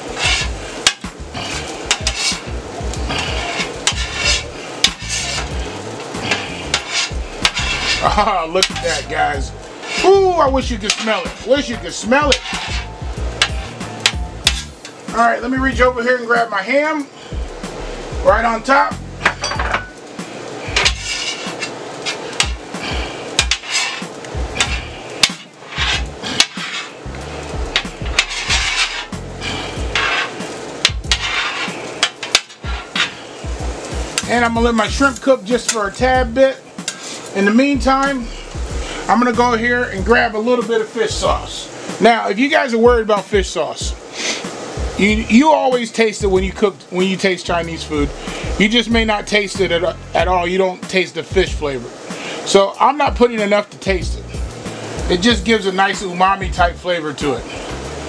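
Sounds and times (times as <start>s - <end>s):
metal spatulas scraping griddle: 0.0s - 15.1s, 19.2s - 27.0s, 27.6s - 36.0s, 36.8s - 39.5s
sharp metal clanks: 19.2s - 20.0s.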